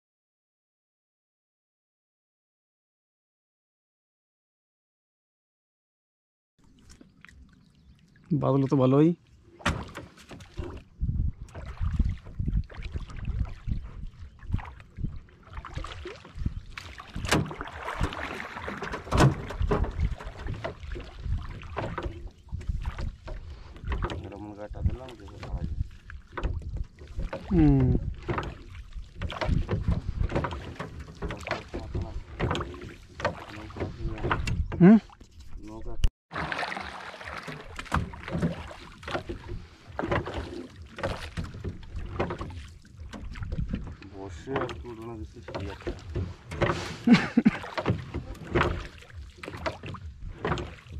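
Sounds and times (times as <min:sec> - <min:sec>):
oar splashing through water: 0:06.6 - 0:50.9
knocks on wooden boat: 0:17.1 - 0:23.1, 0:36.5 - 0:43.9, 0:44.5 - 0:50.9.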